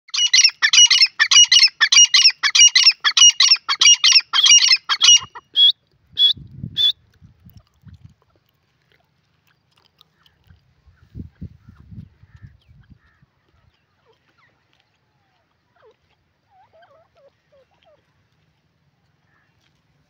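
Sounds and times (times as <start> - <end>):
bird harsh repeated calls: 0.1 - 5.7.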